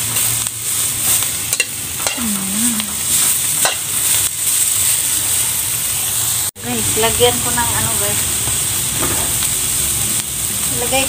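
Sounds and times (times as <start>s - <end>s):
food sizzling in a wok: 0.0s - 11.0s
spatula scraping and knocking pan: 3.0s - 5.4s.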